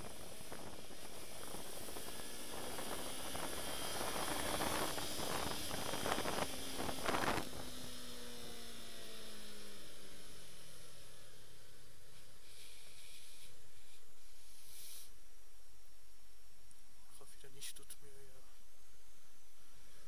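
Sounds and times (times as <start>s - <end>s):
wind noise: 0.0s - 7.8s
motorcycle engine running: 0.0s - 14.5s.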